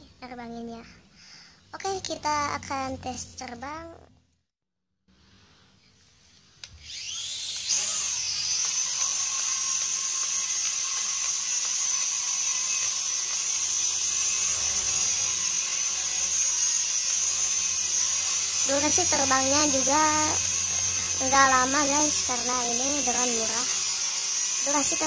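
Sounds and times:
toy drone propellers whining: 6.7 - 25.0.

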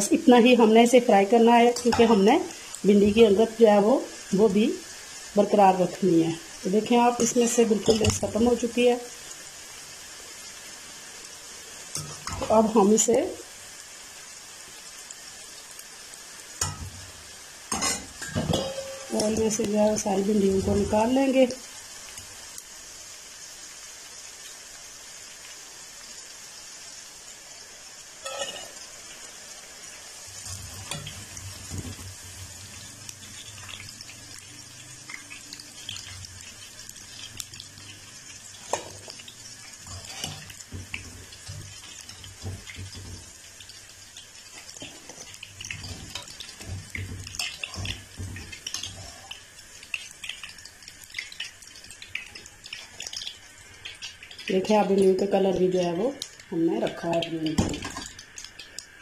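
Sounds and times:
okra sizzling in hot oil: 0.0 - 59.0.

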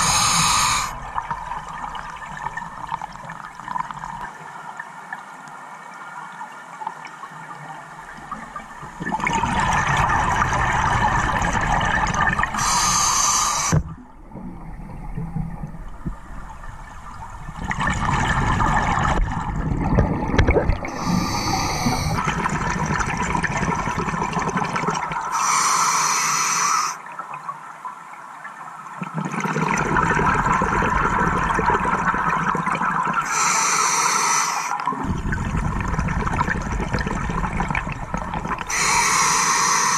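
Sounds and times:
diver breathing through regulator: 0.0 - 1.0, 12.6 - 13.8, 20.9 - 22.3, 25.3 - 27.0, 33.2 - 34.8, 38.7 - 39.9.

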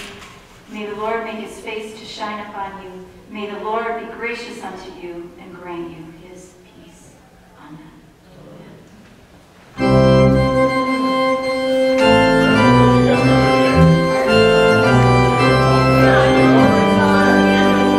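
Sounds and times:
church organ sustained chords: 9.8 - 17.9.

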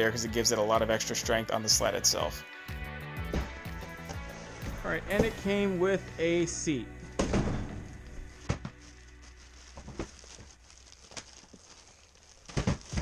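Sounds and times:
plastic packaging rustling: 8.0 - 13.0.

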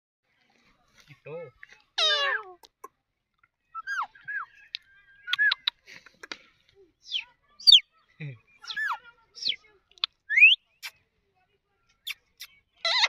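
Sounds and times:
parakeet calling: 2.0 - 2.4
parakeet chirps and clicks: 4.7 - 5.8, 8.7 - 11.0.

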